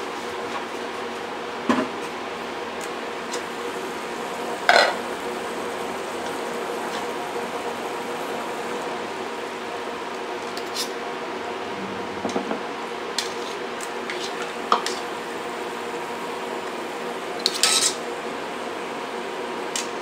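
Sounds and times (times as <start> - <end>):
steady hiss from pot: 2.2 - 11.0, 13.2 - 20.0.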